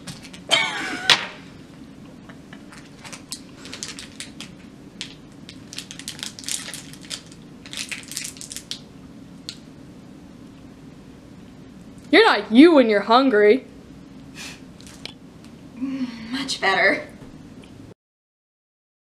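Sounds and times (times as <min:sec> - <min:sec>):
plastic wrapper crinkling: 0:02.7 - 0:09.6.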